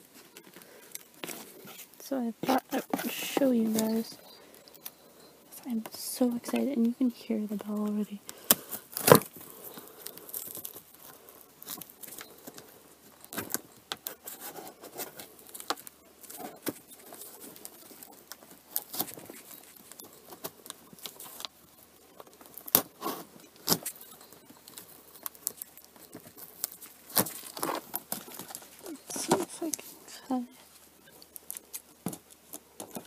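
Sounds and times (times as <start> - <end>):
small bell jingling: 3.0 - 8.2.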